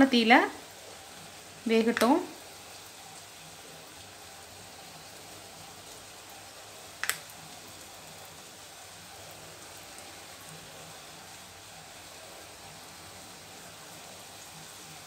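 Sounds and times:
batter deep-frying in oil: 0:00.0 - 0:15.0
sharp click: 0:07.0 - 0:07.2.

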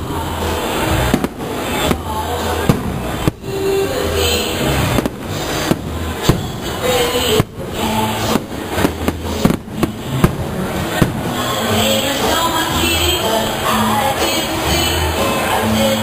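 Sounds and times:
continuous rumble of fireworks: 0:00.0 - 0:16.0
firework shells bursting: 0:00.9 - 0:04.0, 0:04.6 - 0:11.7.

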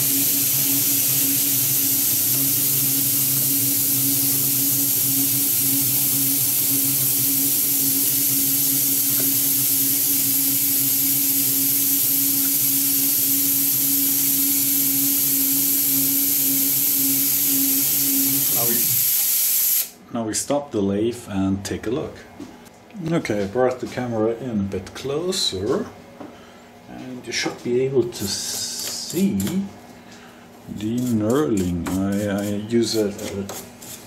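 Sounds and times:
metal lathe humming: 0:00.0 - 0:18.7
compressed air hissing: 0:00.0 - 0:20.0.

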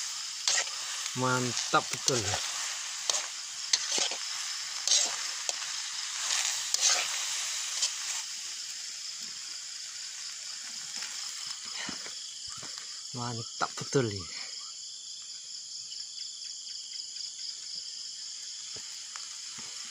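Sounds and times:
spatula scraping a wok: 0:00.0 - 0:09.5
food sizzling in a wok: 0:00.0 - 0:15.8, 0:17.5 - 0:19.9.

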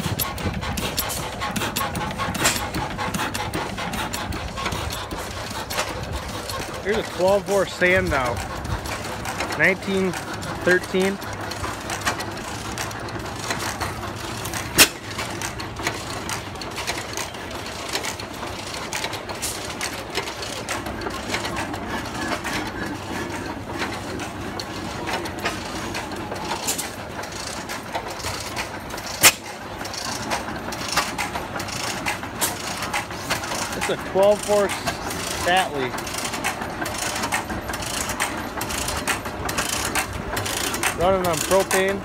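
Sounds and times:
stationary gas engine clattering: 0:00.0 - 0:42.0.

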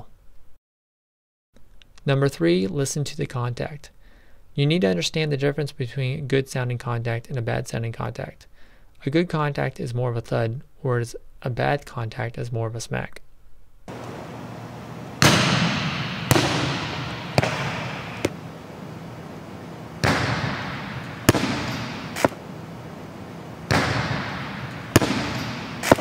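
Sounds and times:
volleyball serve hit by hand: 0:13.9 - 0:18.5, 0:20.0 - 0:22.7, 0:23.7 - 0:26.0
ball bouncing on court: 0:13.9 - 0:18.8, 0:20.0 - 0:26.0.

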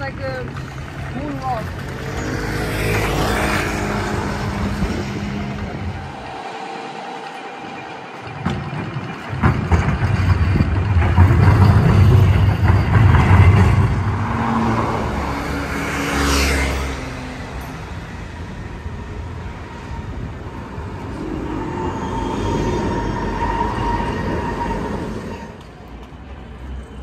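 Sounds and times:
vehicles passing with rumble: 0:00.0 - 0:23.0
tram passing: 0:00.0 - 0:27.0
hissing vehicle pass-by: 0:02.1 - 0:08.4.

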